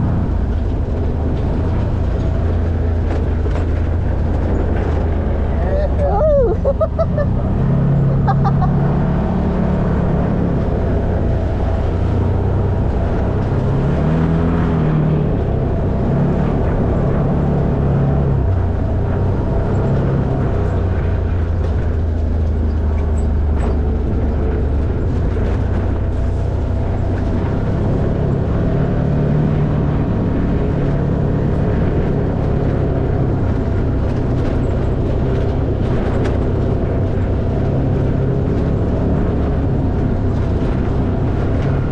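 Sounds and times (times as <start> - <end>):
off-road vehicle engine running: 0.0 - 41.9
chassis rattles and knocks: 0.4 - 5.6.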